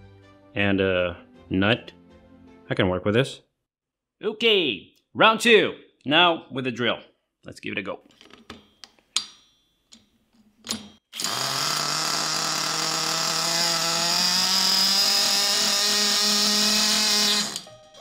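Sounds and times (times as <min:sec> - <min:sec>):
electric drill whirring: 0:11.1 - 0:17.7.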